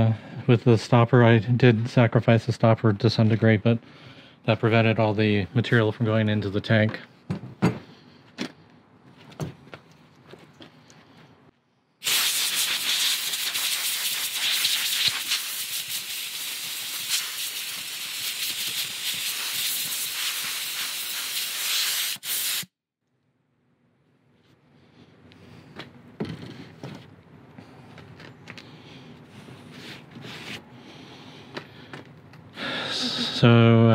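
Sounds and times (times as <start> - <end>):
compressed air hissing: 12.0 - 22.8.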